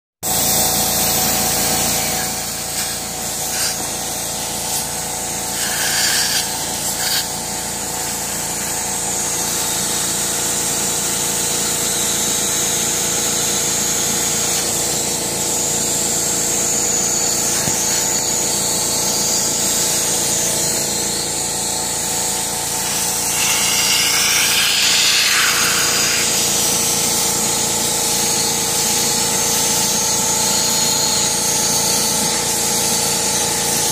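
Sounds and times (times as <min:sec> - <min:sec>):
vacuum motor whine: 0:00.3 - 0:33.9
rushing hiss of suction: 0:01.6 - 0:08.8, 0:22.4 - 0:27.5.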